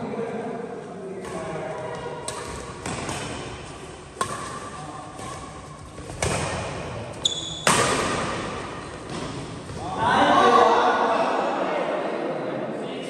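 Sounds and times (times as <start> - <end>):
racket striking shuttlecock: 1.2 - 9.7.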